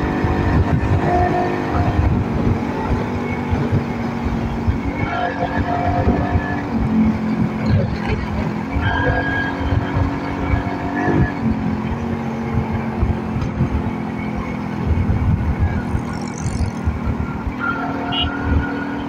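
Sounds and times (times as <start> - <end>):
motorcycle engine running: 0.0 - 5.0, 9.7 - 18.8
wind buffeting microphone: 0.0 - 8.9, 9.5 - 17.6.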